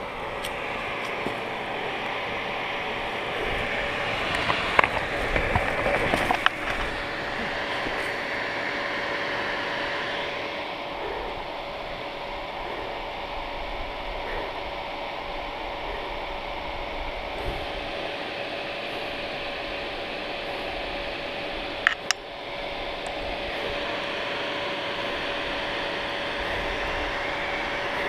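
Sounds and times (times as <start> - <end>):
dirt bike engine running: 0.0 - 9.5.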